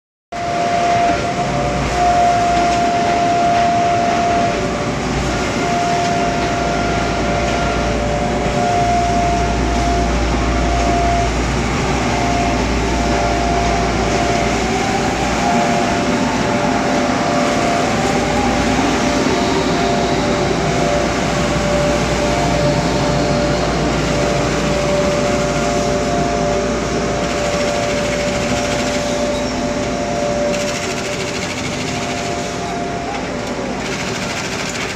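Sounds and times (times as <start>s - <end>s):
steady machine tone: 0.4s - 34.9s
folder gluer machine running: 27.2s - 29.6s, 30.5s - 34.9s.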